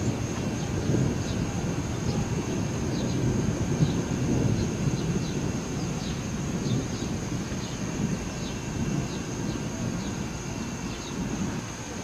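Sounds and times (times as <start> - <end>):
distant thunder rumbling: 0.0 - 12.0
bird chirping: 10.9 - 11.2.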